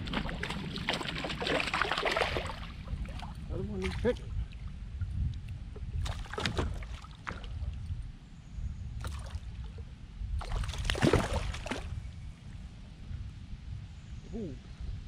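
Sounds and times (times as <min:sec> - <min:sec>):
fish splashing in water: 0:00.0 - 0:04.1, 0:06.0 - 0:07.6, 0:10.4 - 0:12.0.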